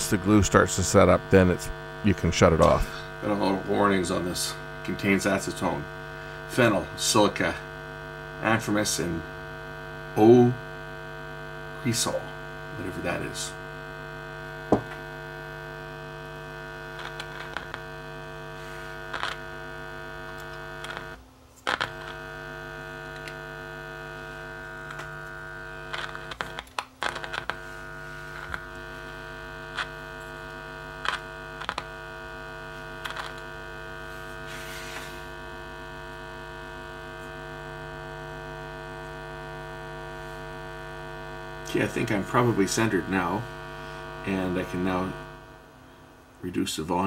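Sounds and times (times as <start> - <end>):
speaker test tone hum: 0.0 - 47.0.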